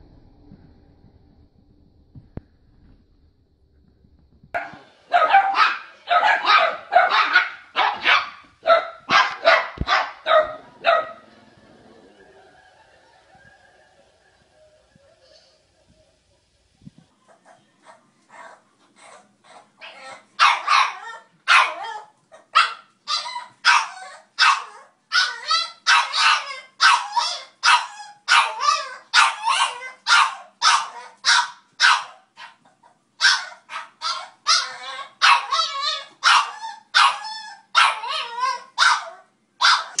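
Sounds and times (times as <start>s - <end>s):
puppy yapping: 4.6s - 11.2s, 17.3s - 40.0s.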